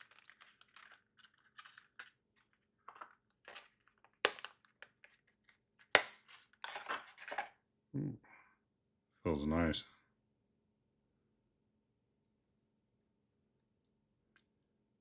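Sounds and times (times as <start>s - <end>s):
plastic packaging crinkling: 0.0s - 7.5s.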